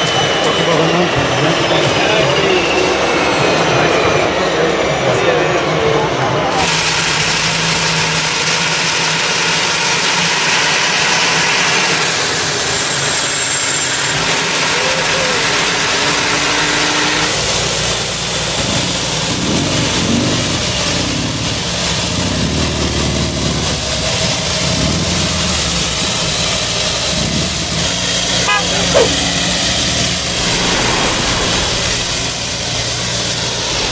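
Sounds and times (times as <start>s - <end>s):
high turbine whine: 0.0s - 33.9s
rushing exhaust noise: 0.0s - 33.9s.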